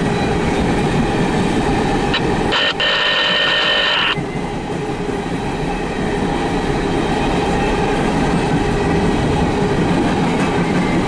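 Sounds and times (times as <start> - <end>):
steel wheels on rails: 0.0 - 11.0.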